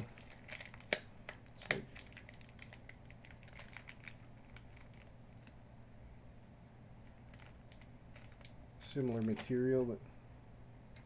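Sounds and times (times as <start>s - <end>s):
plastic bag crinkling: 0.0s - 5.6s, 7.0s - 9.9s.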